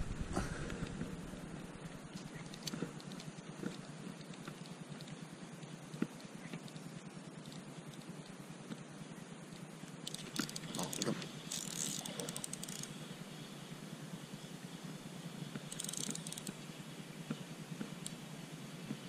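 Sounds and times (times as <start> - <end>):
steady low hum: 0.0 - 19.0
fishing reel clicks and rattles: 10.0 - 13.0, 15.6 - 16.7.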